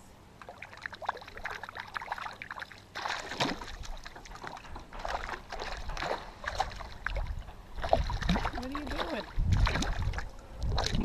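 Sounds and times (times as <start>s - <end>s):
fish splashing in water: 0.4s - 11.0s.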